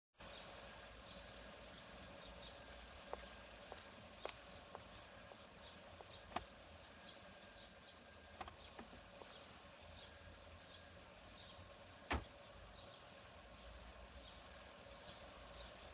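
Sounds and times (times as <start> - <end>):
small bird chirping: 0.2 - 15.9.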